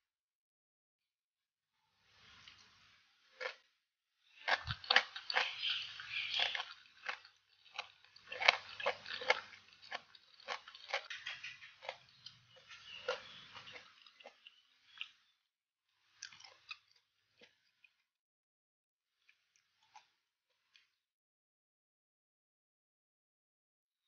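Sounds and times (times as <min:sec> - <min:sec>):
crunchy chewing: 0:03.4 - 0:03.6, 0:04.3 - 0:15.3, 0:16.0 - 0:18.0, 0:19.2 - 0:21.0.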